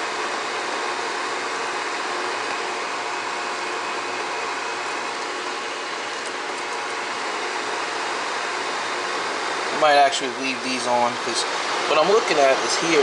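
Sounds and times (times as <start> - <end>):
dehydrator fan rushing air: 0.0 - 13.0.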